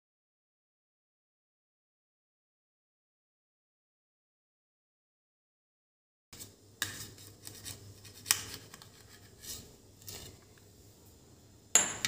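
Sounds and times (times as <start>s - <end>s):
knife scraping metal plate: 8.9s - 10.4s.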